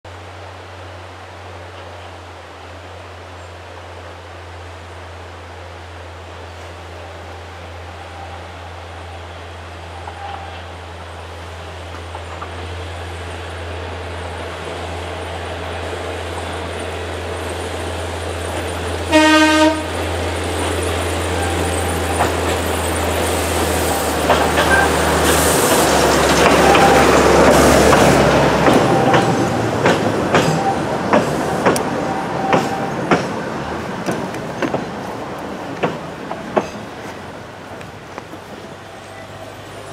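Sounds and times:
diesel locomotive engine running: 0.1s - 39.9s
wheels clacking over rail joints: 11.8s - 13.0s, 14.4s - 39.9s
train horn toot: 19.0s - 20.0s.

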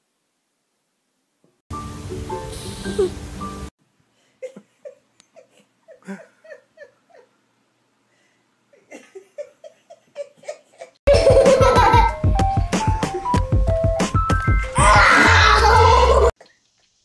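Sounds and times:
person giggling: 2.8s - 3.2s, 4.4s - 7.4s, 8.7s - 12.2s
loud music with a beat: 11.1s - 16.0s.

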